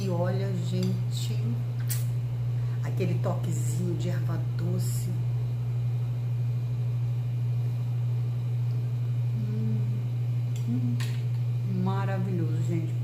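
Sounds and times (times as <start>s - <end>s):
steady low hum: 0.0s - 13.0s
person humming mmm: 9.2s - 11.1s.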